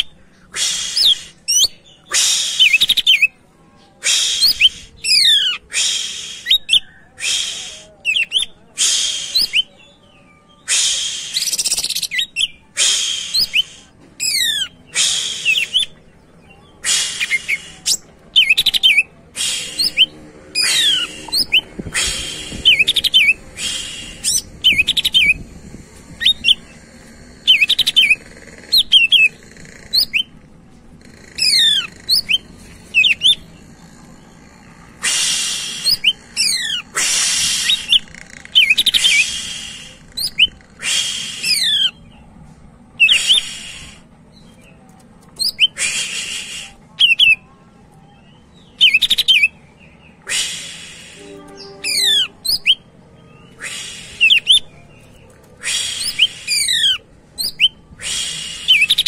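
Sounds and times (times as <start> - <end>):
bird singing loudly: 50.3 - 54.7.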